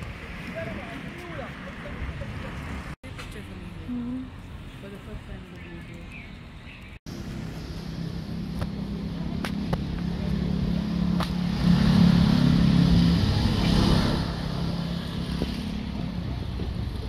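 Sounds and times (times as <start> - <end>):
vehicle engine passing: 7.1 - 17.0.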